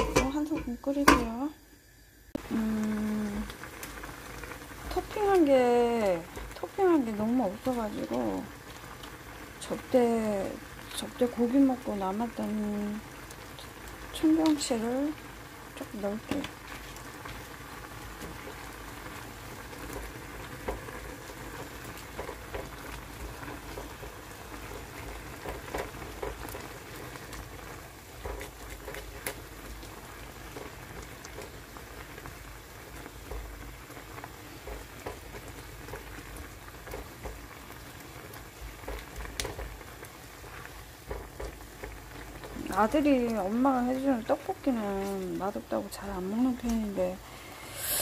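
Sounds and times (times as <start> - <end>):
broth bubbling in a pan: 0.0 - 48.0.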